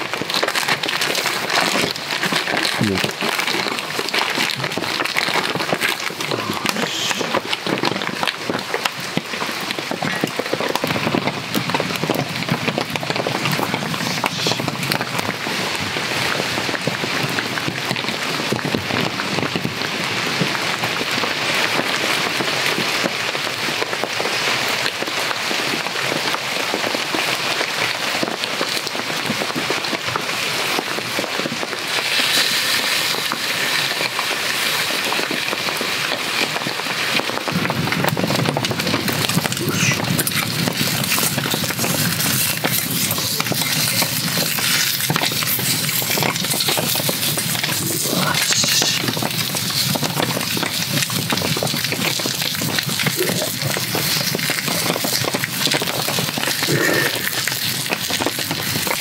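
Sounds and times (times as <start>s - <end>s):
rain on tarp and forest floor: 0.0s - 59.0s
wood fire crackling: 0.0s - 59.0s
patties sizzling in frying pan: 31.8s - 35.6s, 39.3s - 59.0s.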